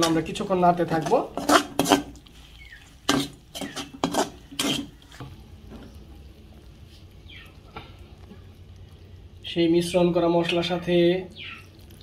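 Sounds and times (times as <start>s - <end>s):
utensil scraping and knocking pan: 0.0s - 2.2s, 3.0s - 5.0s.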